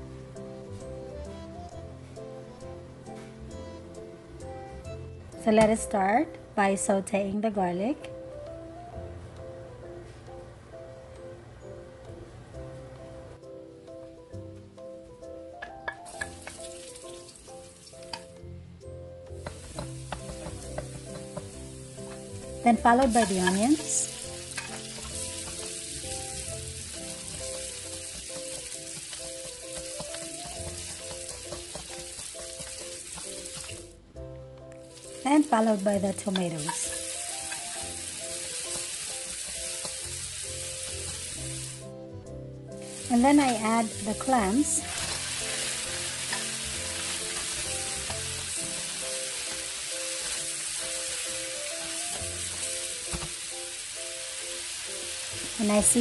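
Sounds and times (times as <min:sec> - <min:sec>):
light background music: 0:00.0 - 0:56.0
onions sizzling in oil: 0:15.9 - 0:18.4, 0:19.3 - 0:34.0, 0:34.8 - 0:41.9, 0:42.7 - 0:56.0.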